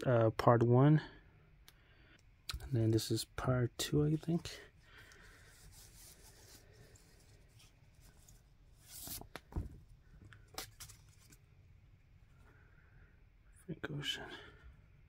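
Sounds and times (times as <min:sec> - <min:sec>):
paper rustling and sliding: 0:05.1 - 0:09.8.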